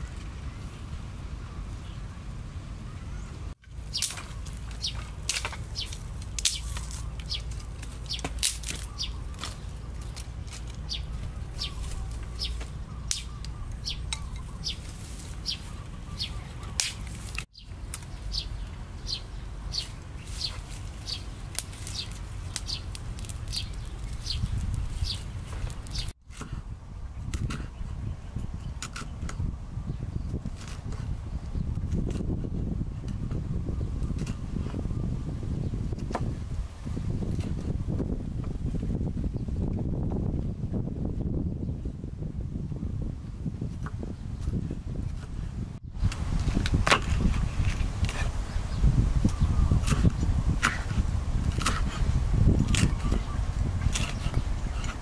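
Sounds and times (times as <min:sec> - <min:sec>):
birds chirping: 0:00.0 - 0:26.2, 0:47.3 - 0:50.9, 0:51.6 - 0:55.0.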